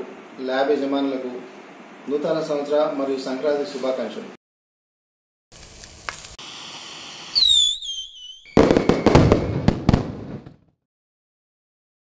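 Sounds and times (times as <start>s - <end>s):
firework rocket hissing launch: 5.5s - 10.4s
crackling firework burst: 5.5s - 10.6s
descending whistle: 7.3s - 9.7s.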